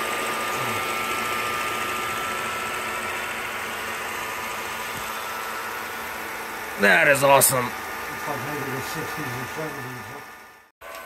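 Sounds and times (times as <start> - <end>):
film projector whirring: 0.0 - 11.0.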